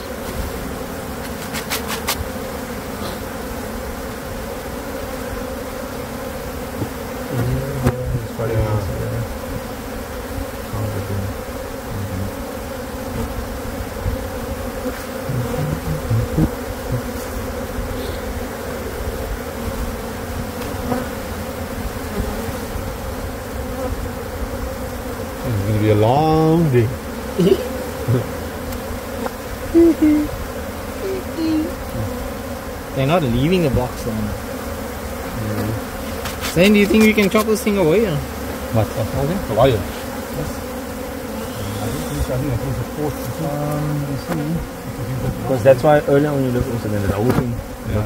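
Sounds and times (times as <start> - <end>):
honey bees buzzing: 0.0 - 48.0
person speaking: 6.8 - 9.6, 10.7 - 12.4, 15.2 - 17.3, 25.5 - 28.5, 29.8 - 30.4, 31.0 - 32.3, 33.0 - 34.4, 35.3 - 40.7, 41.4 - 48.0.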